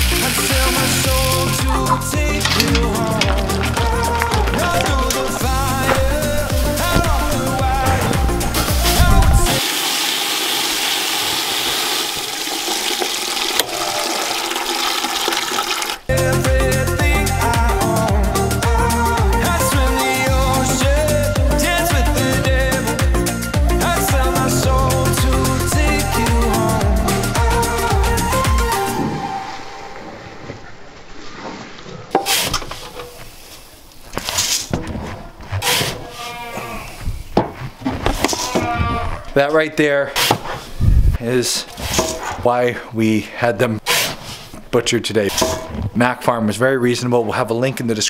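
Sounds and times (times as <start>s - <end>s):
grain poured into metal tub: 0.0s - 1.7s
water splashing into plastic bucket: 9.6s - 16.1s.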